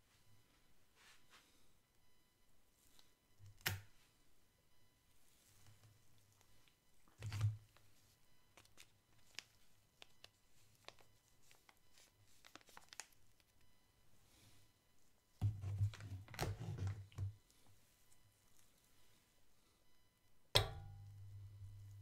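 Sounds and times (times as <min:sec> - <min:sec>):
paper sachet crinkling: 0:08.6 - 0:13.6.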